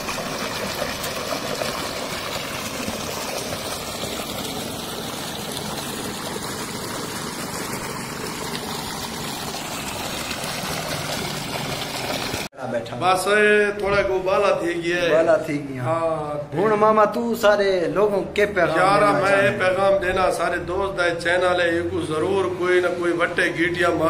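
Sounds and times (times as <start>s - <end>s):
water gushing from pipe: 0.0s - 12.5s
water splashing onto stone: 0.0s - 12.5s.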